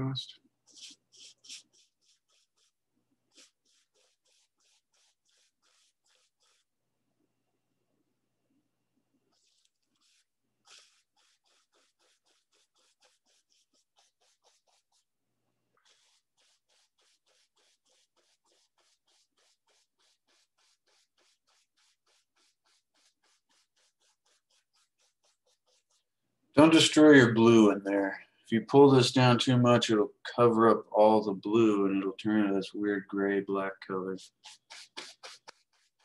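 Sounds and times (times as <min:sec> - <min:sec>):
bristle brush strokes on canvas: 0:00.0 - 0:06.8, 0:09.2 - 0:27.4, 0:33.6 - 0:36.0.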